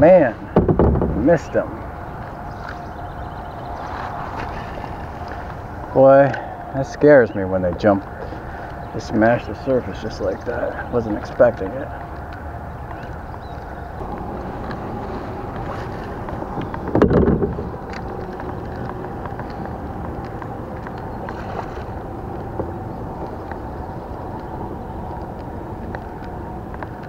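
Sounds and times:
wind noise on microphone: 0:00.0 - 0:11.1, 0:11.7 - 0:27.0
water around kayak: 0:00.0 - 0:27.0
loud thump: 0:00.6 - 0:01.3.

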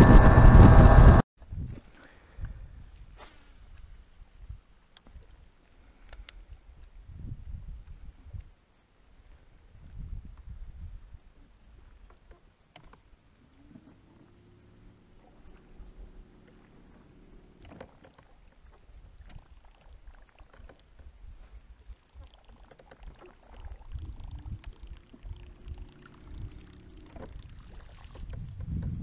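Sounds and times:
electric trolling motor humming: 0:00.0 - 0:01.2, 0:13.9 - 0:18.3, 0:23.9 - 0:28.9
water against boat hull: 0:09.9 - 0:29.0.

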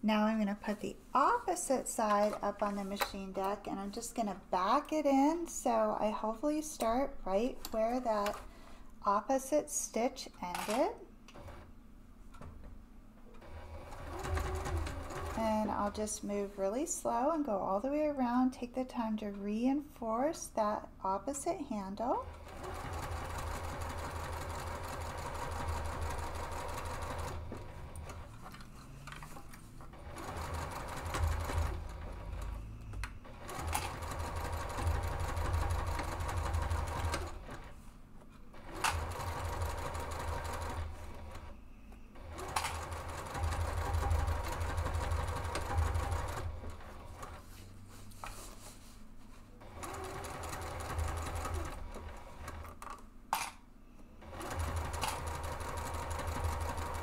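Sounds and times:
sewing machine stitching: 0:13.3 - 0:16.2, 0:21.8 - 0:29.2, 0:29.9 - 0:37.8, 0:38.5 - 0:41.6, 0:42.2 - 0:47.5, 0:49.6 - 0:52.8, 0:54.2 - 0:57.0.

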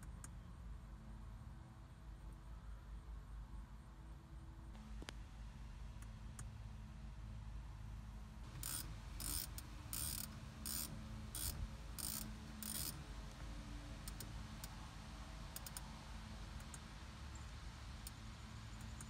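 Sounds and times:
rotary knob ratcheting clicks: 0:08.5 - 0:13.0, 0:14.0 - 0:14.7, 0:15.6 - 0:15.8.

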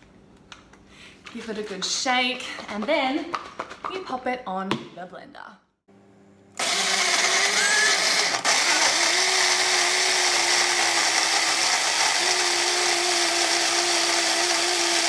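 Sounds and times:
blender motor humming: 0:06.6 - 0:15.0.

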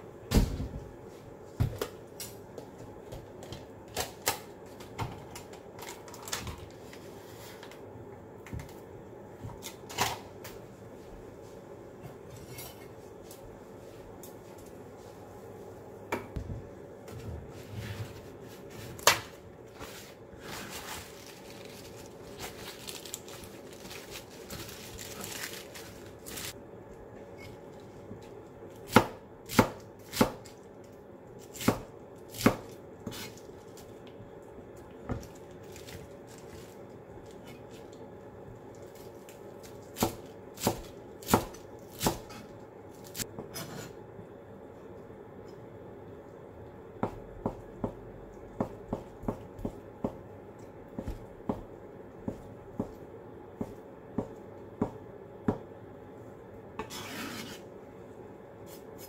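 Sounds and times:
rustling of handling: 0:19.6 - 0:26.6
knife chopping on cutting board: 0:28.9 - 0:30.4, 0:31.5 - 0:33.3, 0:40.0 - 0:42.4, 0:51.0 - 0:51.7.

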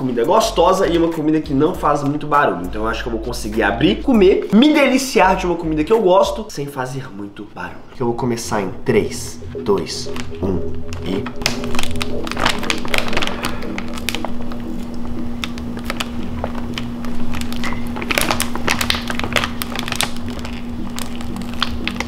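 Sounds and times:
background music with held note: 0:00.0 - 0:06.6, 0:07.9 - 0:22.0
foil snack bag crinkling: 0:10.1 - 0:22.0.

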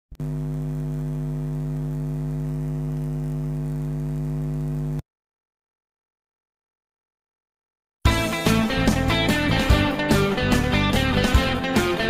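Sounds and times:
low electrical hum: 0:00.2 - 0:05.0.

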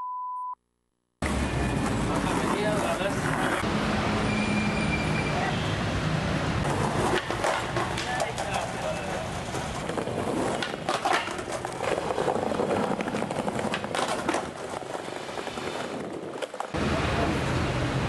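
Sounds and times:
skateboard wheels rolling on tiles: 0:01.2 - 0:03.7, 0:06.5 - 0:17.6
street noise: 0:01.2 - 0:18.0
skateboard clacks: 0:06.6 - 0:16.8.

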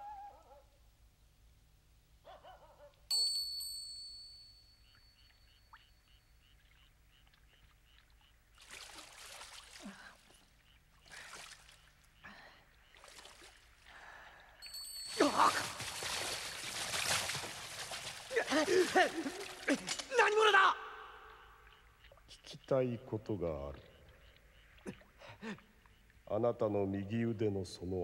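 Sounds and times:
high bell-like ding: 0:03.1 - 0:05.2
faint tinkling notes: 0:03.1 - 0:06.6, 0:14.5 - 0:16.6
water splashing and trickling: 0:04.9 - 0:26.4.

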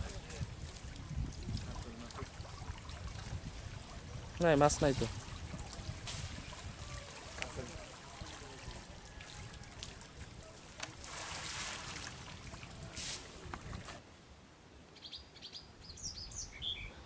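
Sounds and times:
water splashing and swishing: 0:00.0 - 0:14.0
small birds chirping: 0:15.0 - 0:17.0.

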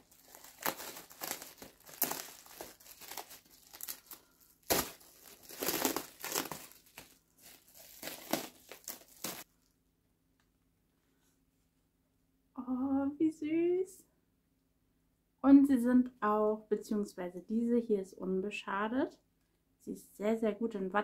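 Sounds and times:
packaging crinkling and tearing: 0:00.0 - 0:09.5.

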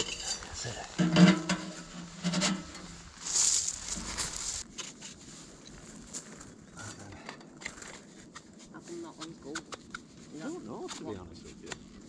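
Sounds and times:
metal pipe scraping: 0:00.0 - 0:04.6
metal pipe knocking: 0:01.0 - 0:02.9.

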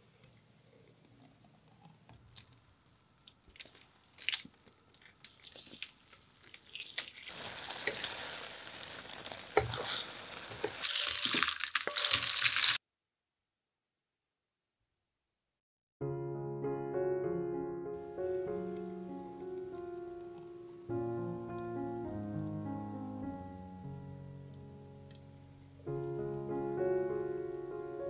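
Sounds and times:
liquid pouring: 0:03.2 - 0:12.8
snail shells clattering into dish: 0:10.6 - 0:12.8.

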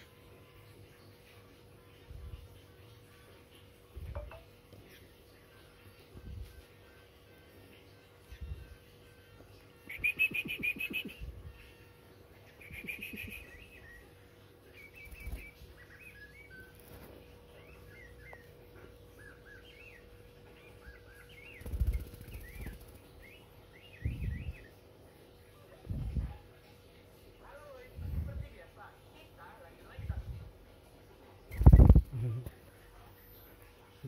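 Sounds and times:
bird chirping: 0:09.8 - 0:11.3, 0:12.4 - 0:24.8.

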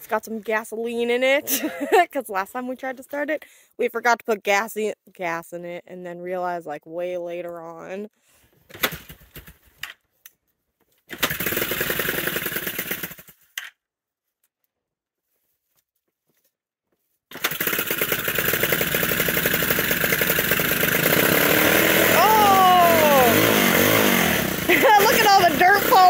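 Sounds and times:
dirt bike engine running: 0:11.2 - 0:13.3, 0:17.3 - 0:26.0.

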